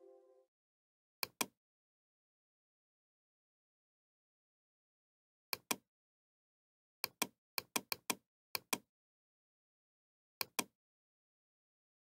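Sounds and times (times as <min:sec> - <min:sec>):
mouse buttons clicking: 0:10.4 - 0:10.7.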